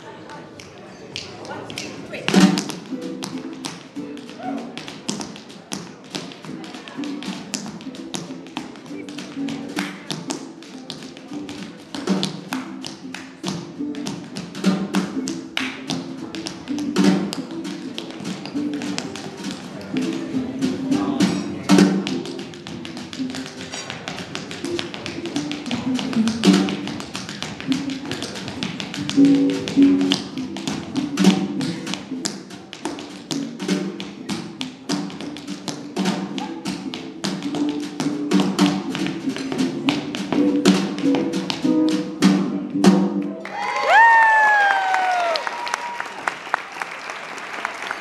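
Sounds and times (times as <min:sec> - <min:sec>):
resonator guitar: 0:02.1 - 0:43.4
tap shoes on wooden floor: 0:02.3 - 0:20.2, 0:21.2 - 0:42.1.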